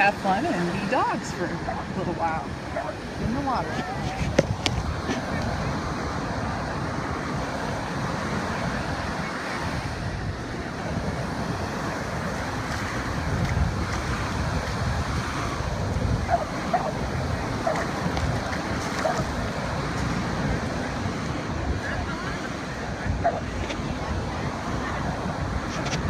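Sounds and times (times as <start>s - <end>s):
ocean surf breaking: 0.0s - 26.0s
wind buffeting microphone: 0.0s - 26.0s.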